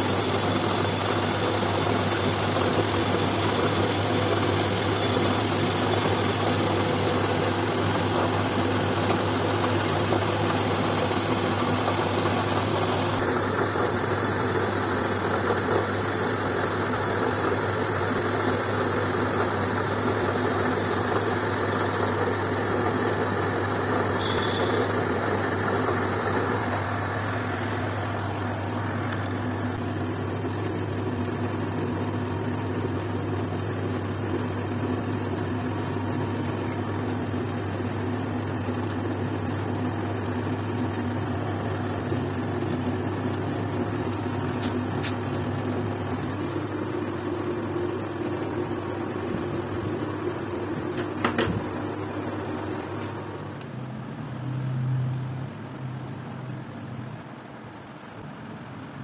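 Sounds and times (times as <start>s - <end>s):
metal lathe running: 0.0s - 29.8s.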